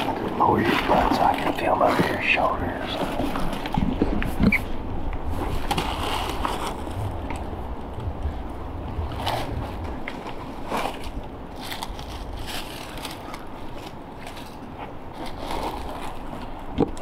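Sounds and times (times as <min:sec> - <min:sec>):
dry leaves crunching: 0:09.1 - 0:16.7.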